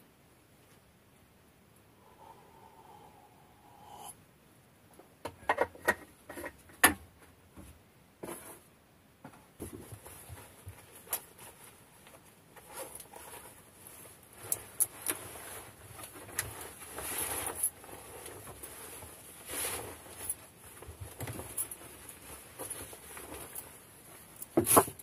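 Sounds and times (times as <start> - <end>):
clothing and bedding rustling: 9.6 - 25.0.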